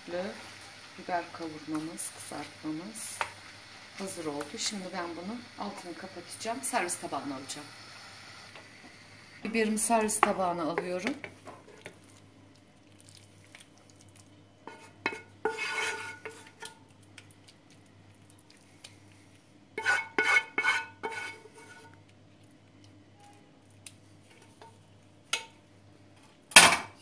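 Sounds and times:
wooden spoon scraping pan: 0:14.6 - 0:16.7, 0:19.8 - 0:22.0.

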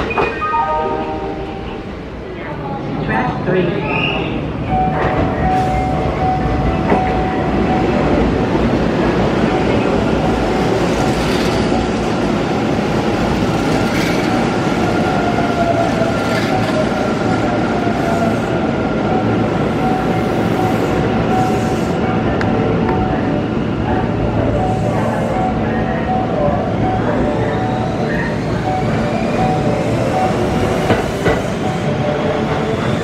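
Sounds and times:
train wheels clacking over rails: 0:29.6 - 0:33.0.

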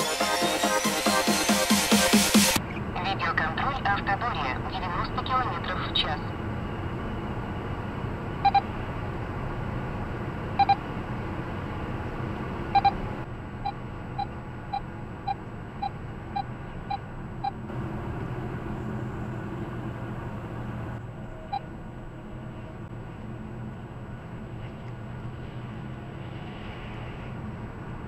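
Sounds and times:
car cabin road noise: 0:02.5 - 0:28.0.

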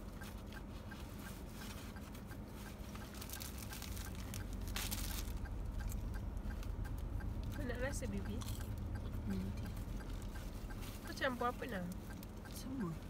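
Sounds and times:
faint even ticking: 0:00.0 - 0:13.0
low car interior hum: 0:00.0 - 0:13.0
plastic bags crinkling: 0:03.1 - 0:05.4.

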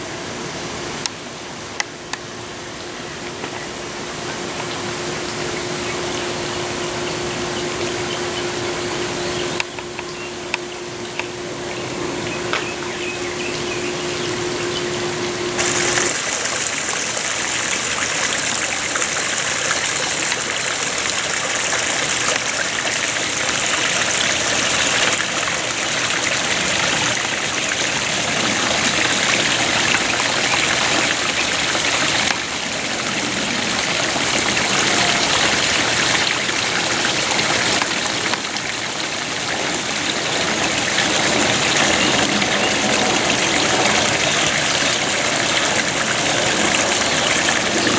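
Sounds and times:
faint steady hum: 0:00.0 - 0:47.9
water trickling over rocks: 0:15.6 - 0:47.9.

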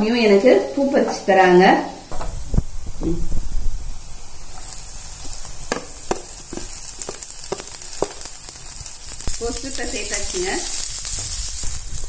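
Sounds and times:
vegetables sizzling in oil: 0:00.0 - 0:12.0
wooden spoon knocking pan: 0:05.7 - 0:08.5.

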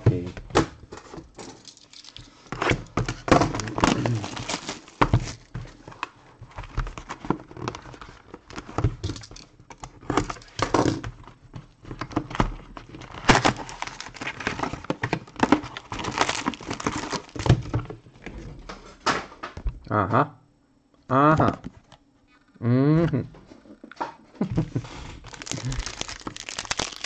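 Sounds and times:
plastic wrapping crinkling: 0:01.4 - 0:06.0, 0:12.9 - 0:17.8, 0:25.2 - 0:27.0
cardboard rustling and scraping: 0:02.5 - 0:09.1, 0:09.8 - 0:19.0.

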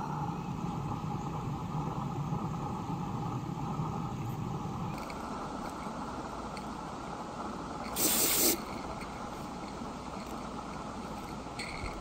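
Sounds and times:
steam locomotive simmering hiss: 0:00.0 - 0:11.6
loud hiss of escaping steam: 0:07.8 - 0:08.8.

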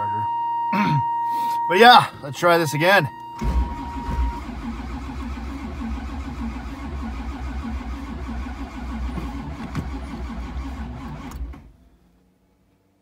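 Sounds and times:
car engine cranking: 0:03.4 - 0:11.8.

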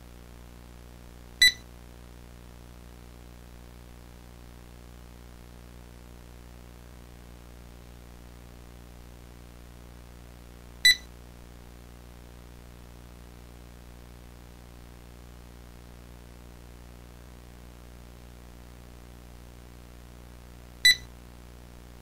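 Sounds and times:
low electrical hum: 0:00.0 - 0:22.0
short electronic beep: 0:01.4 - 0:01.6, 0:10.9 - 0:11.1, 0:20.9 - 0:21.1.

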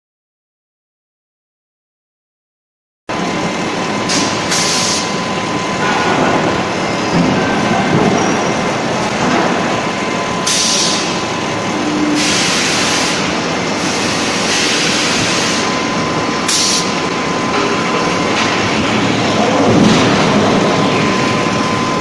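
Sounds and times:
faint machine whine: 0:03.1 - 0:22.0
forging press machine din: 0:03.1 - 0:22.0
compressed air hiss: 0:16.5 - 0:16.9.

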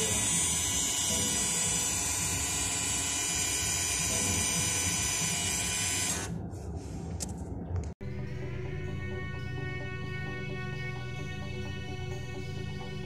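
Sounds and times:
brake actuator motor whirring: 0:00.0 - 0:06.4.

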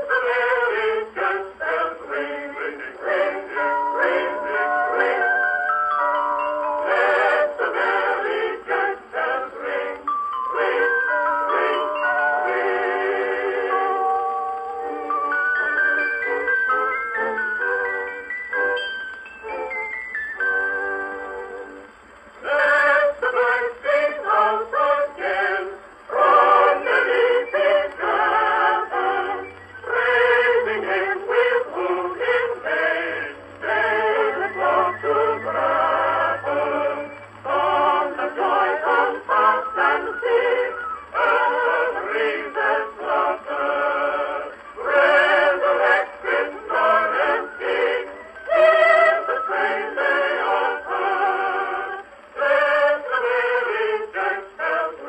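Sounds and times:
voices singing on old recording: 0:00.0 - 0:55.0.

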